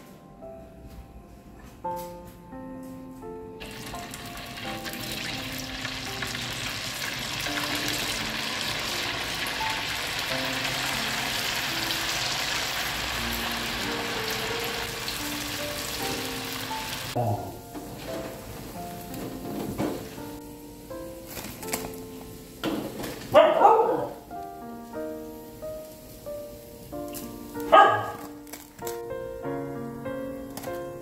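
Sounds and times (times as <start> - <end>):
soft background music: 0.0 - 31.0
fish cakes sizzling in hot oil: 3.6 - 17.2.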